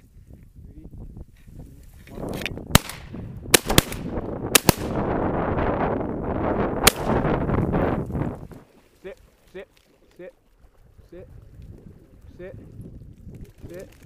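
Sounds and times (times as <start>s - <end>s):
wind buffeting microphone: 0.0s - 9.4s, 10.4s - 14.0s
shotgun blasts: 2.7s - 5.1s, 6.8s - 7.3s.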